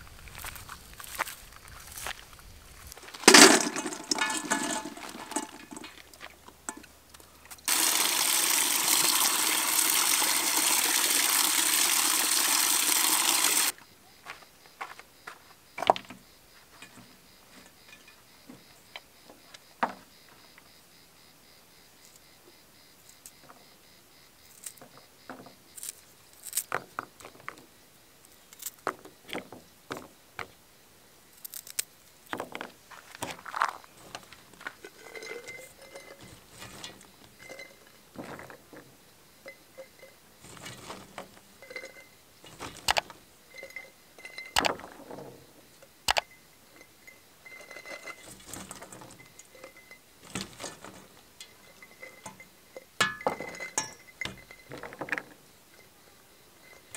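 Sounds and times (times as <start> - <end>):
food clinking against glass jar: 3.3 - 6.9, 34.8 - 38.0, 41.6 - 44.8, 46.2 - 55.1.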